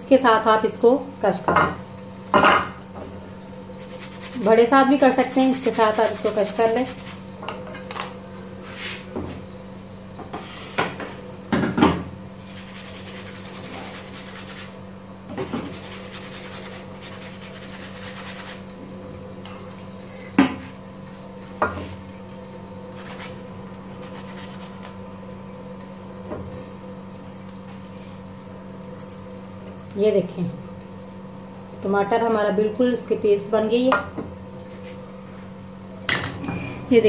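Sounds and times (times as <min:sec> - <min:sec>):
grater rasping scrape: 0:03.8 - 0:07.2, 0:12.5 - 0:14.8, 0:15.7 - 0:18.6.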